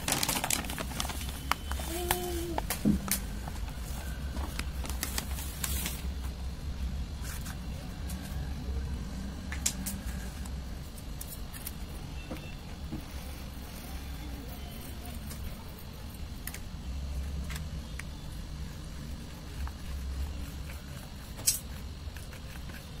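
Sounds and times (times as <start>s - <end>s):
plastic bag crinkling: 0.0s - 3.6s, 4.5s - 6.1s.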